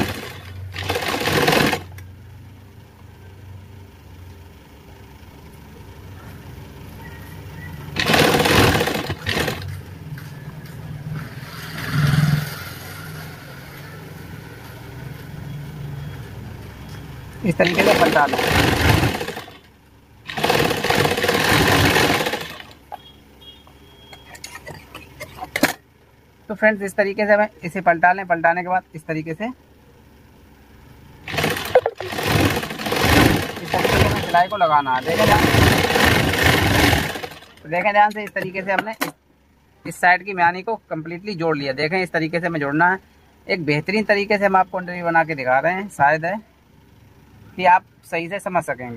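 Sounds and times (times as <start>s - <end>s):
sewing machine stitching: 0.0s - 2.0s, 8.0s - 9.8s, 17.5s - 19.7s, 20.3s - 22.9s, 31.2s - 37.8s.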